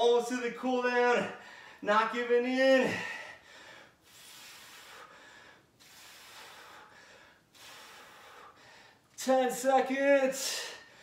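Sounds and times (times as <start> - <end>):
man breathing hard: 1.3 - 1.8, 2.9 - 9.2, 10.4 - 11.0.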